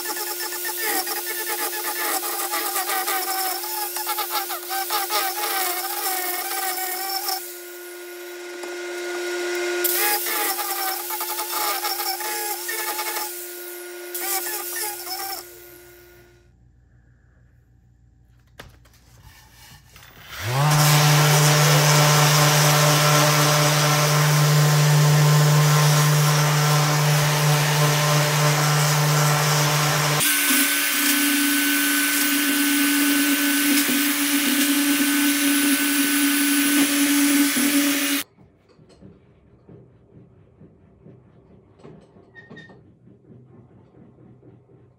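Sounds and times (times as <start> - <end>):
high-pitched machine running: 0.0 - 8.5, 9.7 - 16.3, 20.4 - 38.2
angle grinder on wood: 0.0 - 16.3, 20.0 - 38.2
orbital sander whine: 0.0 - 16.4, 20.3 - 38.2.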